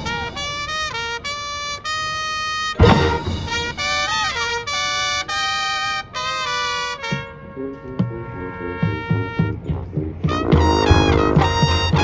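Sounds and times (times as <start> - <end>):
full-band percussion hit: 0.0 - 1.1, 2.8 - 4.6, 8.8 - 12.0
marching band horns playing chords: 0.0 - 12.0
sliding swooping horn phrase: 0.0 - 12.0.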